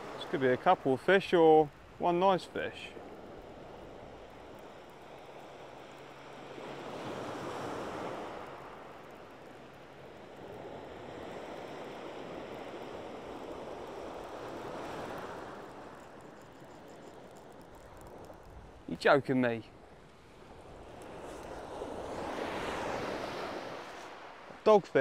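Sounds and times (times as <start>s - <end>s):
waves washing up shingle beach: 0.0s - 25.0s.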